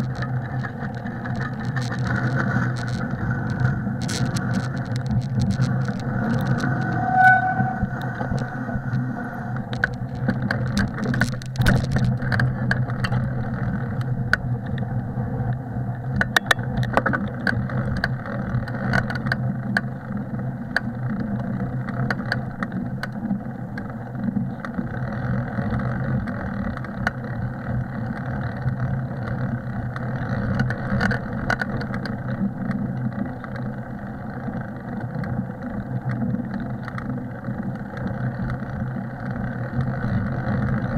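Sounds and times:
wind on microphone: 0:00.0 - 0:13.4
bicycle tyres rumbling on snow: 0:00.0 - 0:40.9
bike clicks and rattles: 0:00.0 - 0:40.9
short squeak: 0:06.6 - 0:08.6.

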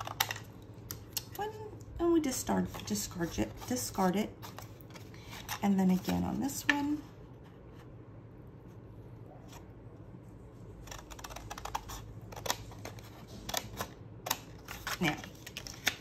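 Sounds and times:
scissors snipping cardstock: 0:10.8 - 0:16.0.

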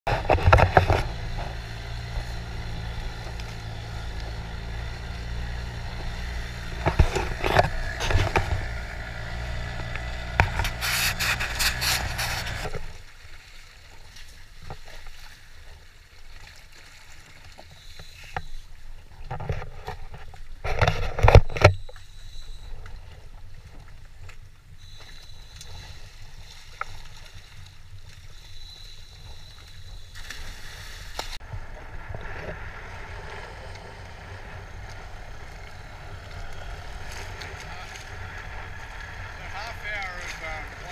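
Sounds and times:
short rushes of noise: 0:00.1 - 0:13.0
boat engine hum: 0:00.1 - 0:14.6, 0:15.4 - 0:40.9
sea and wind: 0:12.6 - 0:40.9.

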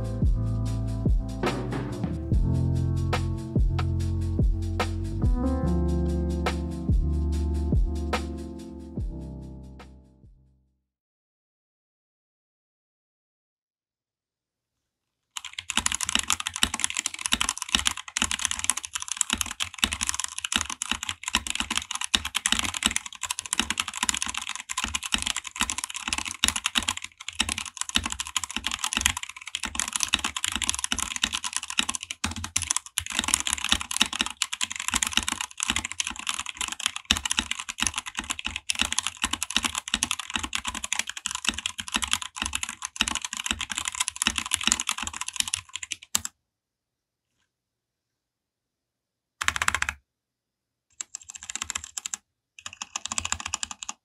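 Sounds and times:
fast mechanical keyboard typing: 0:15.4 - 0:46.3, 0:49.4 - 0:50.0, 0:51.0 - 0:54.0.

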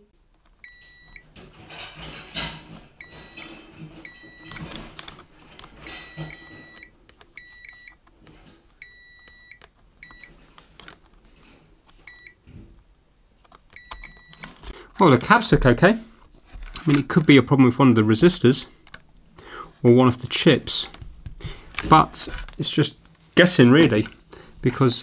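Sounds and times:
multimeter continuity beeps: 0:00.6 - 0:01.2, 0:03.0 - 0:04.7, 0:05.8 - 0:08.0, 0:08.8 - 0:10.3, 0:12.1 - 0:12.4, 0:13.8 - 0:14.6.

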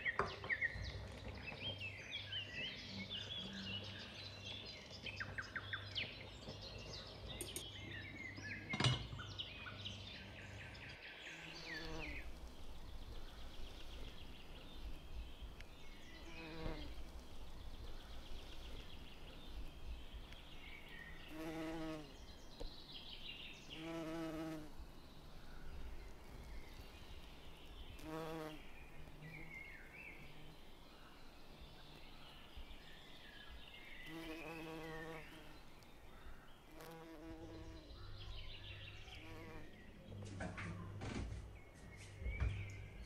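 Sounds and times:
insect buzzing: 0:11.3 - 0:37.9, 0:39.1 - 0:39.8.

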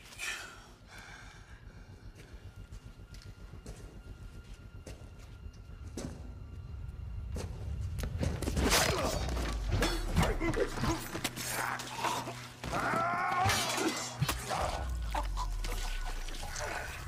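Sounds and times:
blades clashing and thudding blows: 0:08.2 - 0:15.0
person crying out: 0:10.6 - 0:16.1.

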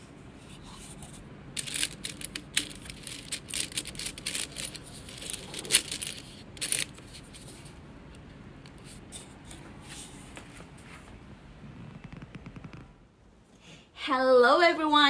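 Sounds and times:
coins clinking in a cardboard tube: 0:01.6 - 0:07.6.

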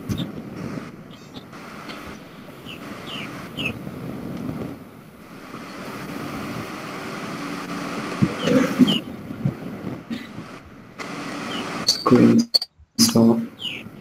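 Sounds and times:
high falling chirps: 0:01.1 - 0:03.8.

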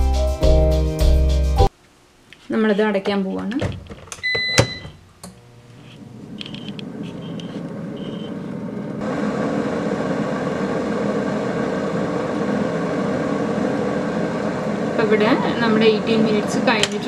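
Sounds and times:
convection fan humming: 0:01.7 - 0:17.0
short electronic beep: 0:08.0 - 0:08.4.

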